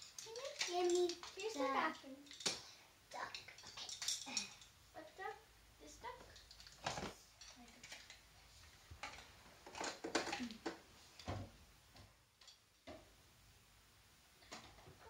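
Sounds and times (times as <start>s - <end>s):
clicks and knocks of plastic doll furniture: 6.2s - 8.2s, 8.8s - 13.1s, 14.4s - 15.0s.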